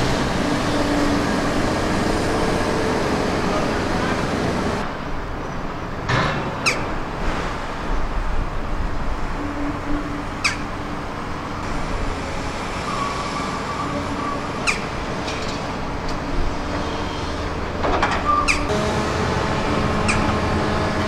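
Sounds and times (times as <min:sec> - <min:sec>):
hydraulic whine: 0:00.0 - 0:04.9, 0:11.6 - 0:21.0
excavator diesel engine: 0:00.0 - 0:06.2, 0:08.9 - 0:21.0.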